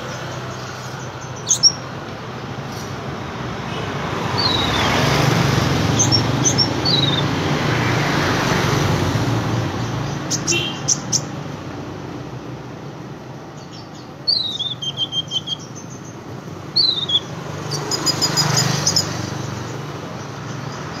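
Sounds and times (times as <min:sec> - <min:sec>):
bird chirping: 0:00.0 - 0:02.0, 0:04.2 - 0:05.1, 0:05.8 - 0:07.5, 0:09.7 - 0:11.5, 0:13.4 - 0:21.0
street traffic hum: 0:00.0 - 0:21.0.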